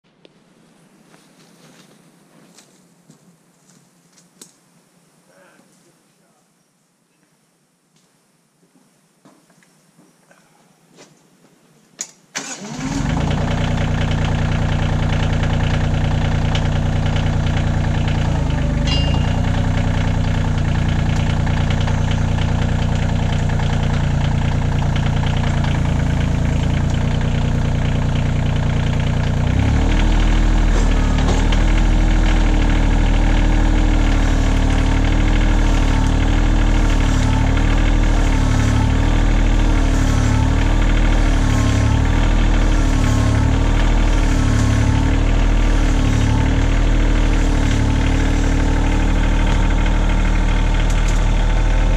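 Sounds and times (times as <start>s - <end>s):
tractor diesel engine starting and running: 12.3s - 51.9s.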